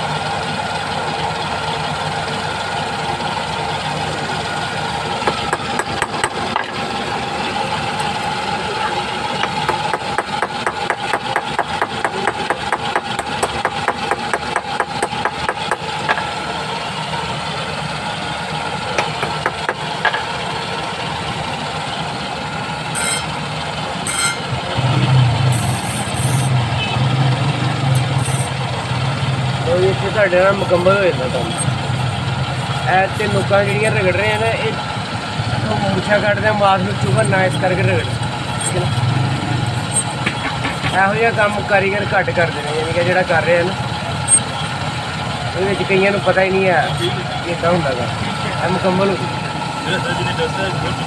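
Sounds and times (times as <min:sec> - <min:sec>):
grinding machine motor humming: 0:00.1 - 0:51.0
steel being ground on wheel: 0:05.2 - 0:15.8, 0:22.9 - 0:23.4, 0:24.0 - 0:46.7.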